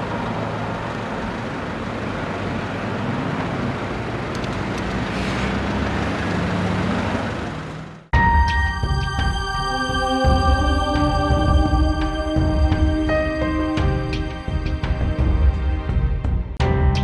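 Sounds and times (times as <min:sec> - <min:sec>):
cars passing with engine hum: 0:00.0 - 0:08.1.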